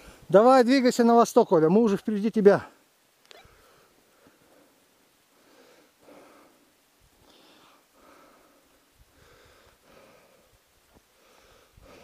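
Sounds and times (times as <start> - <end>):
faint breathing: 0.0 - 0.3, 3.3 - 12.0.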